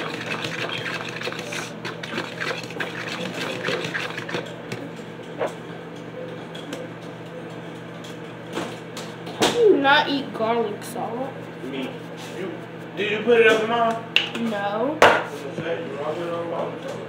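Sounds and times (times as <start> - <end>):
fork beating eggs in bowl: 0.0 - 5.4, 11.0 - 13.6.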